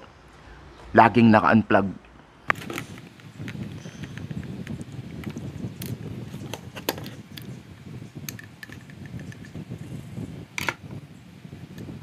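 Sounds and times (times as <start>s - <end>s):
low background noise: 0.0s - 12.0s
screwdriver clicks and taps: 8.3s - 9.6s.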